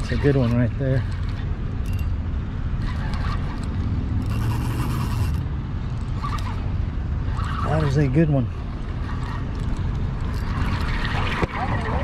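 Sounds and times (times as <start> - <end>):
steady low rumble: 0.0 - 12.0
fishing reel rasping whir: 2.8 - 12.0.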